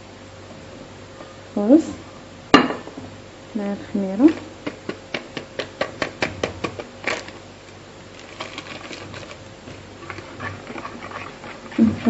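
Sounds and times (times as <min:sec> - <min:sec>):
papery rustle: 0:08.1 - 0:12.0.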